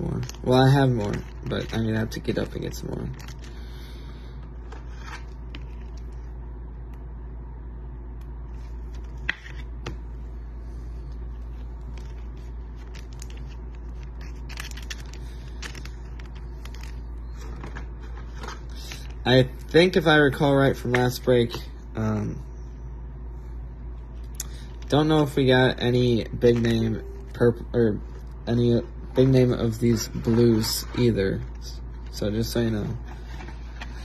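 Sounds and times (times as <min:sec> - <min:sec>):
cards rustling: 0:00.0 - 0:03.7, 0:04.4 - 0:06.3, 0:08.5 - 0:10.1, 0:10.8 - 0:20.0, 0:24.6 - 0:34.0
steady low hum: 0:00.0 - 0:34.0.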